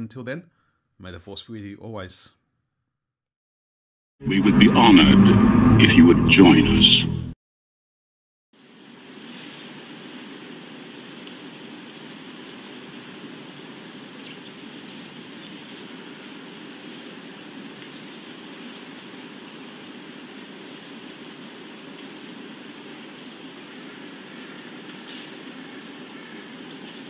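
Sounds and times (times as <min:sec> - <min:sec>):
steady rushing noise: 0:04.2 - 0:07.3.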